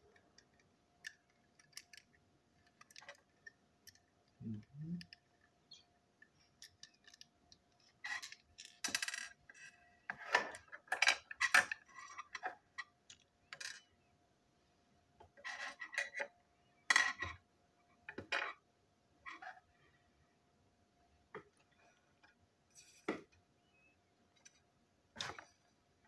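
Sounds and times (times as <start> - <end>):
toy parts clicking and rattling: 0.1 - 5.5, 6.2 - 9.8.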